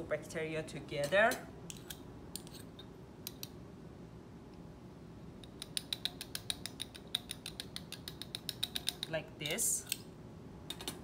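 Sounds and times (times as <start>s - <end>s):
glass and metal tubes clicking: 5.4s - 9.2s.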